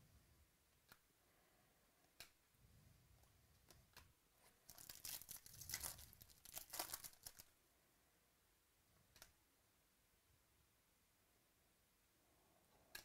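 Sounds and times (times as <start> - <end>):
foil wrapper tearing and crumpling: 4.6 - 7.5
soft clicks: 12.8 - 13.0.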